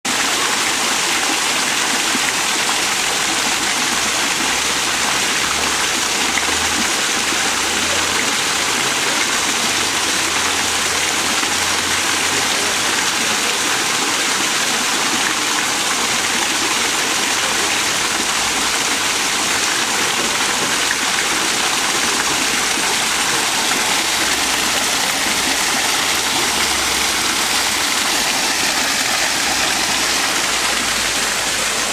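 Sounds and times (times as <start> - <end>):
waterfall splashing into pond: 0.0 - 31.9.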